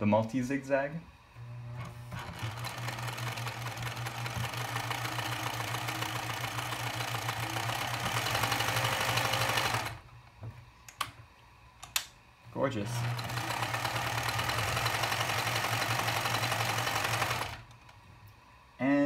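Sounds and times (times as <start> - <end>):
sewing machine running: 1.7 - 10.1, 12.8 - 17.9.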